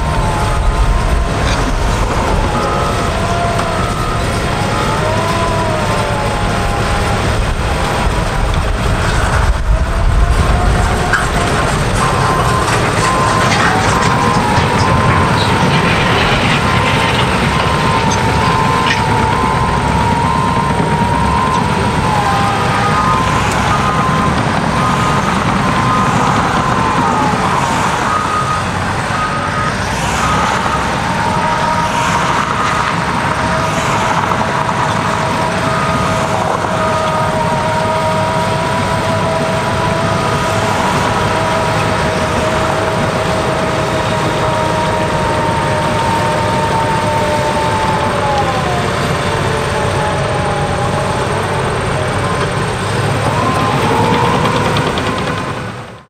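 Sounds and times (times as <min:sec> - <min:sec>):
bulldozer diesel engine: 0:00.0 - 0:56.0
backup alarm beeping: 0:08.9 - 0:33.6.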